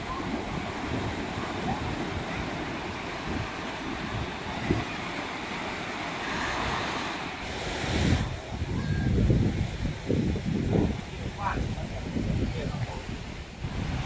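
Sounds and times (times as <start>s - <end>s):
small waves breaking on a beach: 0.0s - 14.0s
wind buffeting the microphone: 0.0s - 14.0s.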